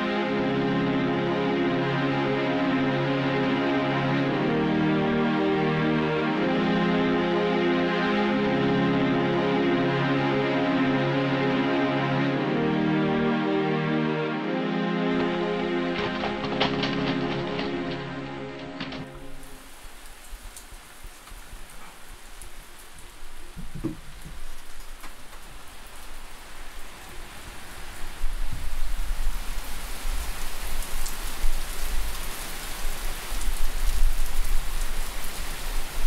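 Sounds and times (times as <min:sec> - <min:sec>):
rain-like rushing hiss: 0:15.2 - 0:36.0.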